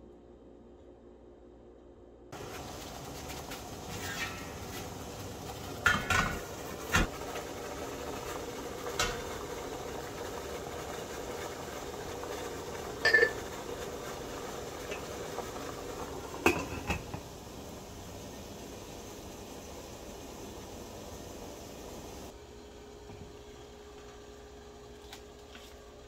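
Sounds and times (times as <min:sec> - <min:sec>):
water boiling in a pot: 0:02.3 - 0:26.0
plate clinking with ringing tone: 0:13.0 - 0:13.5.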